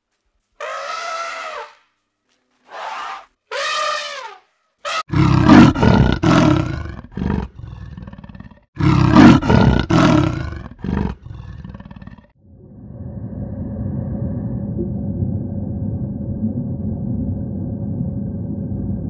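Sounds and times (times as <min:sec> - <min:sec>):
elephant trumpeting: 0:00.6 - 0:01.8, 0:02.7 - 0:12.2
leopard rasping roars: 0:04.9 - 0:12.3.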